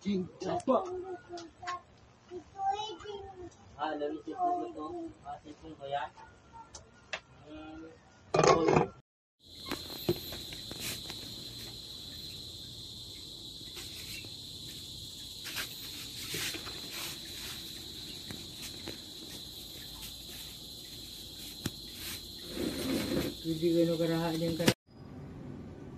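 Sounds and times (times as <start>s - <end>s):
high-pitched insect trill: 9.4s - 25.2s.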